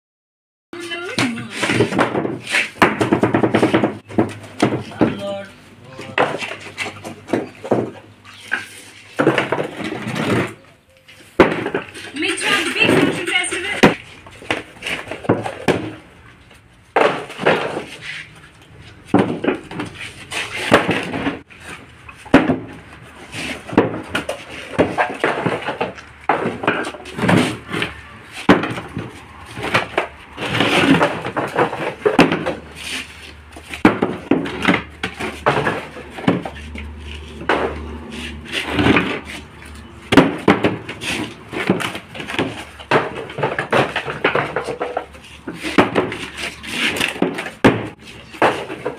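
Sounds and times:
concrete pavers clacking: 0.8s - 48.9s
plastic moulds knocking on hard surface: 1.6s - 5.1s.

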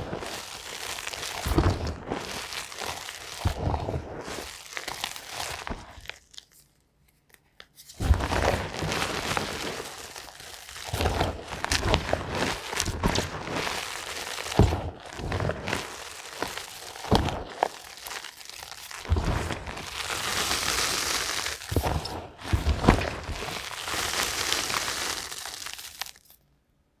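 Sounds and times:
chalk crunching between fingers: 0.2s - 26.4s
chalk pieces snapping: 9.4s - 26.4s.

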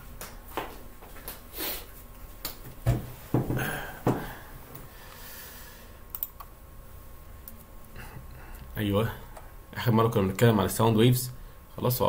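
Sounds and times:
computer keyboard typing: 6.1s - 6.5s.

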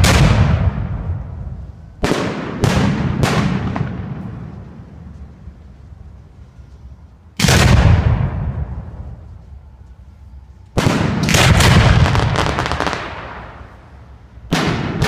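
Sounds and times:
sharp firework cracks: 0.0s - 4.6s, 7.4s - 9.0s, 10.8s - 15.0s
fireworks booming: 0.0s - 5.6s, 7.4s - 9.5s, 10.8s - 15.0s.

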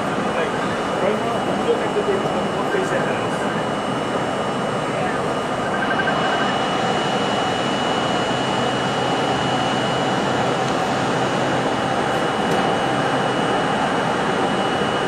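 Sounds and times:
subway train rail noise: 0.0s - 6.4s, 9.6s - 15.0s
thin high whine: 2.0s - 10.6s.

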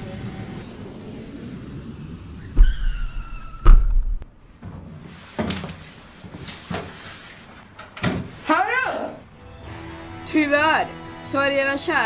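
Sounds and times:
deep rumble with whistling tone: 2.3s - 4.2s.

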